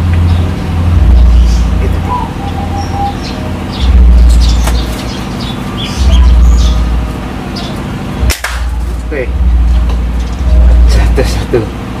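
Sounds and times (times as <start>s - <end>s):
low rumble: 0.0s - 11.6s
sparrows chirping: 0.0s - 11.9s
sharp crack: 8.2s - 8.9s.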